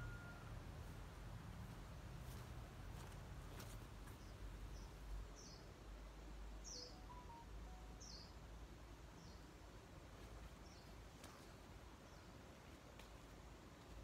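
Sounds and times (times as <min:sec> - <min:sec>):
small bird chirping: 0:06.6 - 0:08.4.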